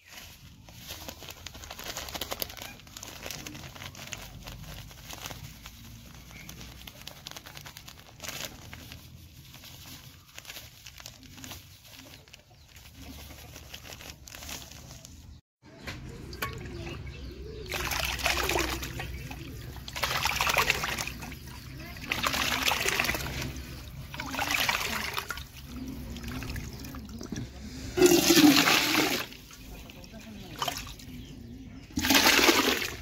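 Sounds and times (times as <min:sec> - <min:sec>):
plastic sack rustling: 0:00.0 - 0:15.4
steel bowl stirring wet slop: 0:16.0 - 0:33.0.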